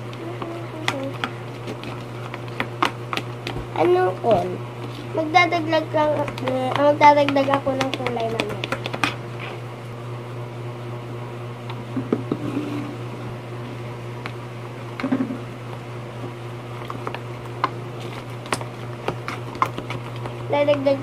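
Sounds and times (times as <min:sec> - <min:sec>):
spoon stirring wet slime: 0:00.0 - 0:09.6, 0:16.7 - 0:21.0
electric fan humming: 0:00.0 - 0:21.0
spoon scraping plastic tub: 0:00.3 - 0:09.6, 0:12.2 - 0:13.0, 0:18.0 - 0:21.0.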